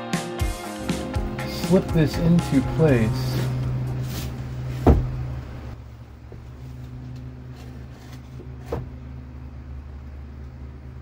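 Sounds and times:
steady low hum: 0.6 - 11.0
wooden board knocking on ceiling: 4.8 - 5.2.

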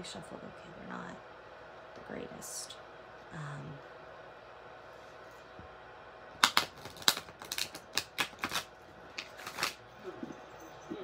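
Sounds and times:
cards being shuffled: 6.4 - 9.8.

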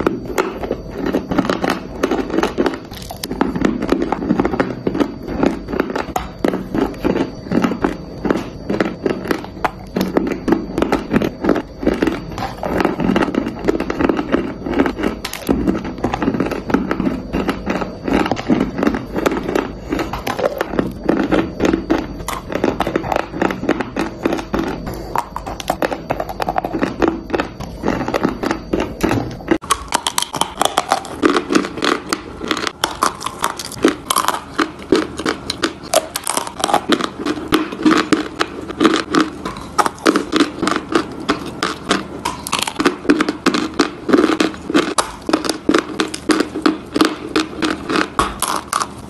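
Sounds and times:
clay chunks being crunched: 0.3 - 49.0.

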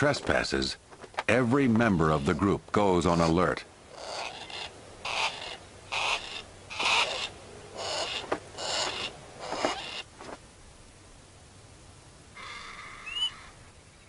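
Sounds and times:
hawk harsh alarm calls: 3.1 - 10.1.

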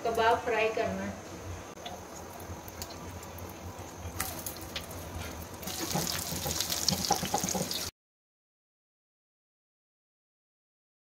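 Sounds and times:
food sizzling in hot oil: 1.8 - 7.9.

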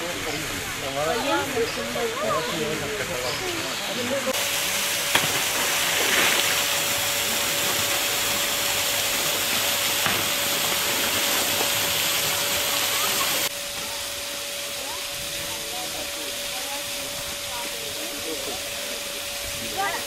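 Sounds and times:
water jet hissing and splashing: 0.0 - 20.0.

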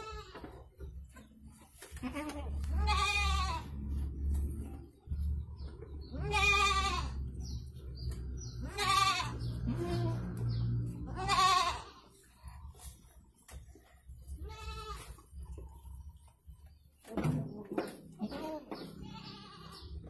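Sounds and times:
goat bleating: 0.0 - 0.9, 1.8 - 4.2, 6.0 - 7.6, 8.4 - 12.4, 14.2 - 15.6, 18.1 - 20.0
low steady rumble: 2.6 - 13.3.

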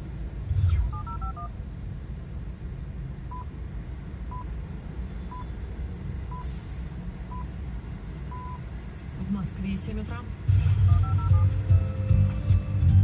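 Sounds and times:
low rumble in a car cabin: 0.0 - 6.4, 7.0 - 13.0
short high beeps: 0.5 - 1.5.

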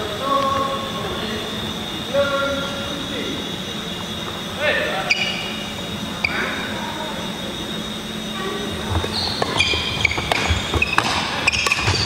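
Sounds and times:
shoes squeaking on floor: 3.9 - 6.8, 8.1 - 12.0
racket hitting shuttlecock: 9.4 - 12.0.

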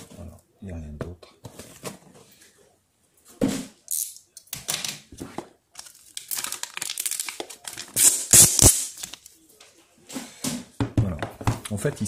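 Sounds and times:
paper wrapper crinkling and tearing: 5.7 - 9.3.

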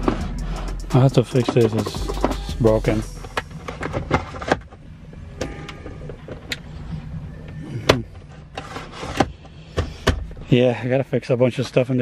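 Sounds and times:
low steady rumble: 0.0 - 8.5.

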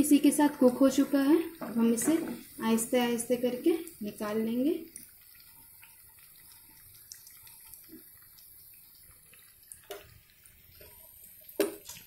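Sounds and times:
food sizzling in frying oil: 0.0 - 12.0.

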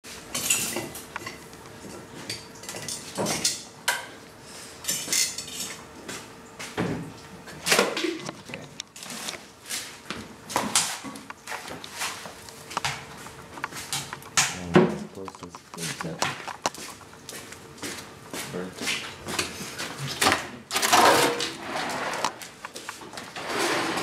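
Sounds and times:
dishes and pans clinking: 0.3 - 4.2, 4.8 - 5.8, 20.1 - 21.6.

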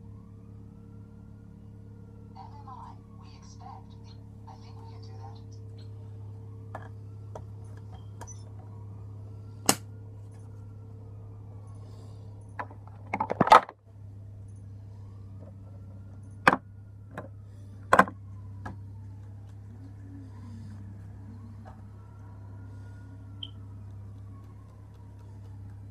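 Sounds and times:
steady low hum: 0.0 - 25.9
sharp clicks and taps: 23.4 - 25.9.

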